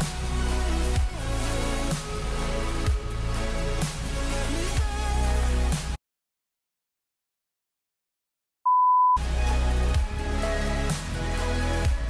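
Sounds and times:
steady high beep: 8.7 - 9.2.

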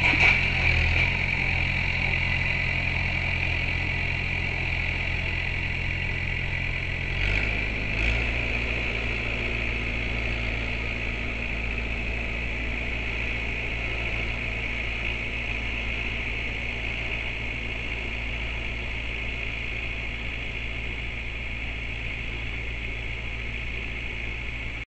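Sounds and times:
short loud engine sounds: 0.0 - 24.8
truck engine idling: 0.0 - 24.8.

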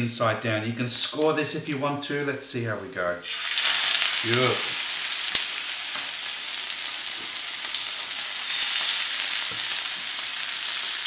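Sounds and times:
fish sizzling in hot oil: 3.2 - 11.0.

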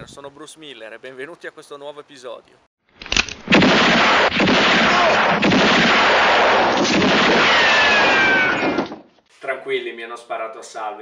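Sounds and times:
gunfire barrage: 3.4 - 8.9.

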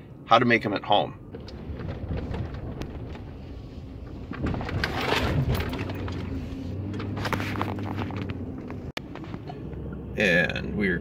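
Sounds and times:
truck engine and road noise: 0.0 - 11.0
knocks and rustles: 1.3 - 9.7.

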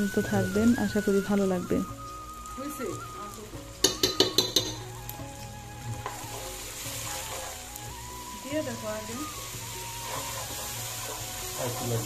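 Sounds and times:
food sizzling in oil: 0.0 - 12.0
wooden spatula stirring: 3.7 - 12.0
spatula clicking against pot: 3.8 - 4.8.

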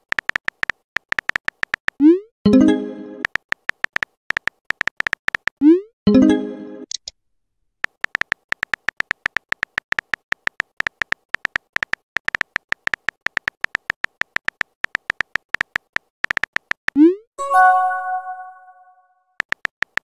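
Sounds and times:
phone keyboard key clicks: 7.8 - 16.9.

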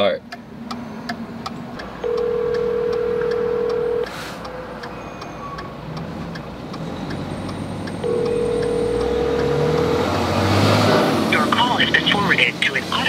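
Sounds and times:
low traffic rumble: 0.0 - 13.0
faint regular clicks: 0.3 - 9.9
phone ringback tone: 2.0 - 4.1, 8.0 - 9.8.

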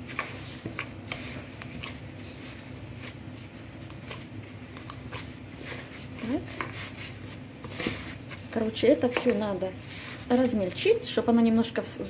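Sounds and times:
hand kneading butter and sugar: 0.0 - 12.0.

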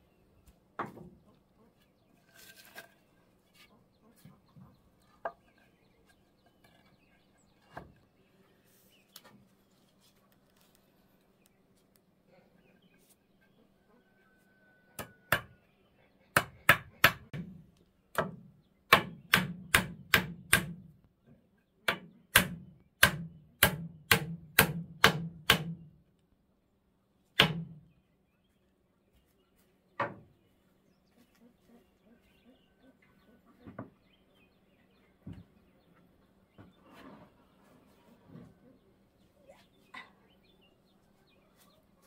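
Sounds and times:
hammer striking nail into wood: 16.4 - 17.5, 18.1 - 20.9, 21.9 - 25.8, 27.4 - 27.8.

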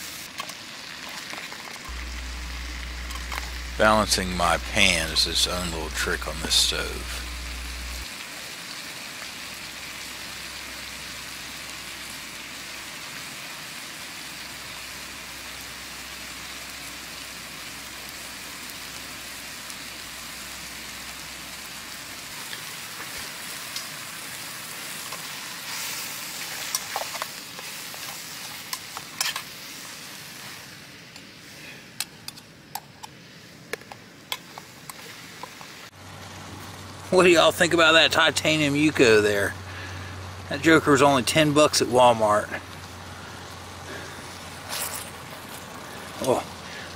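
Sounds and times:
mushrooms sizzling in a pan: 0.0 - 1.3, 1.9 - 31.1, 34.0 - 46.9
spork scraping a pan: 25.7 - 29.5.

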